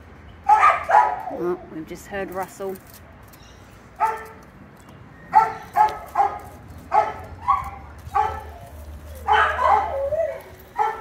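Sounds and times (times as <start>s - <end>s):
dog barking: 0.5s - 1.3s, 4.0s - 4.4s, 5.3s - 8.6s, 9.2s - 10.1s, 10.8s - 11.0s.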